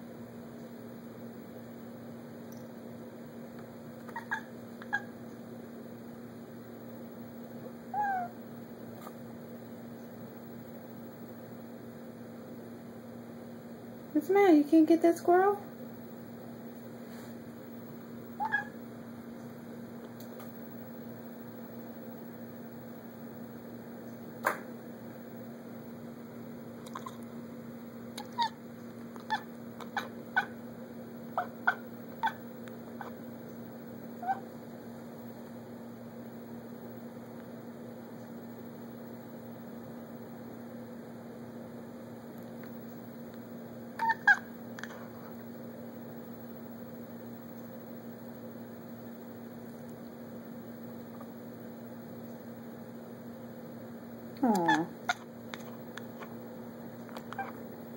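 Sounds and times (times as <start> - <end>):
low electrical hum: 0.0 - 57.9
cat chirping: 4.1 - 5.1, 7.9 - 8.4, 18.4 - 18.8, 26.9 - 27.2, 28.2 - 28.6, 29.2 - 30.6, 31.4 - 33.2, 34.2 - 34.5, 44.0 - 44.5, 54.4 - 55.3, 57.3 - 57.6.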